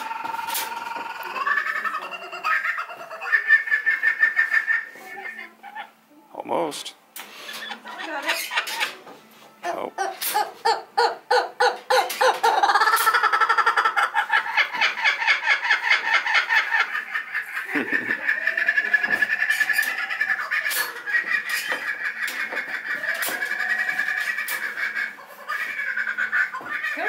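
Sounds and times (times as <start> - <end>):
kookaburra laughing call: 0.0 - 6.0, 9.6 - 27.0.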